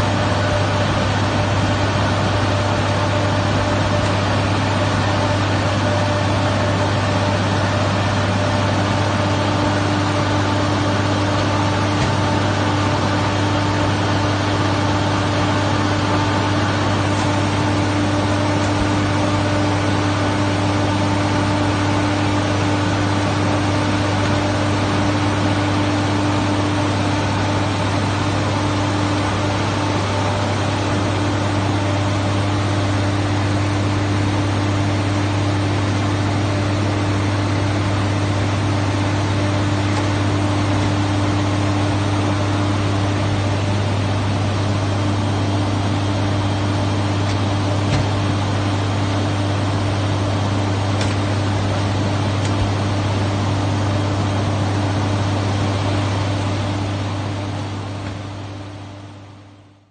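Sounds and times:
ground cart engine drone: 0.0 - 59.2.

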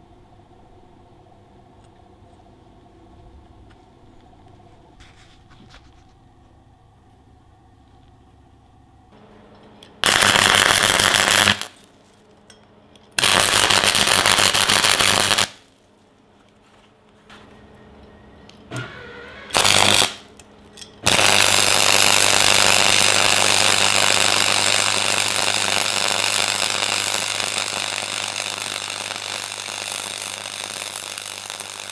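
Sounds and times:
welder machine hum: 9.1 - 12.4, 13.0 - 15.9, 17.4 - 31.9
welding arc crackling: 10.0 - 12.1, 13.2 - 15.7, 18.9 - 20.4, 21.0 - 31.9.

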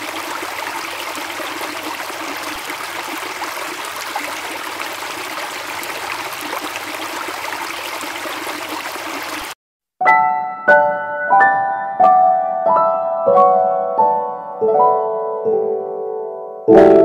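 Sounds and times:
running water: 0.0 - 9.6.

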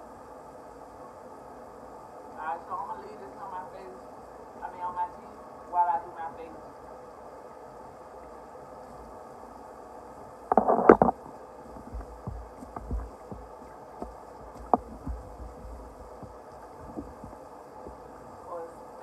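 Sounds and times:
rustling and clattering: 10.5 - 18.1
light knocks and low thumps: 10.5 - 18.2.

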